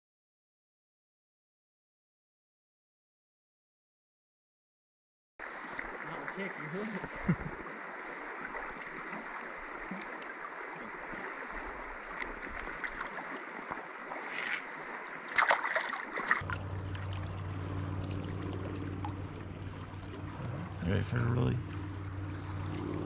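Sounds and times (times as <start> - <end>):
creek water flowing: 5.4 - 23.0
splashes and knocks in water: 5.6 - 19.2
steady low hum: 16.4 - 23.0.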